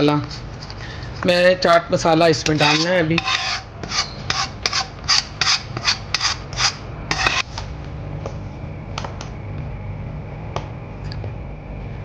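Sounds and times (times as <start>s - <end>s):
steady low hum: 0.0s - 12.0s
spoon scraping a pan: 2.4s - 7.5s.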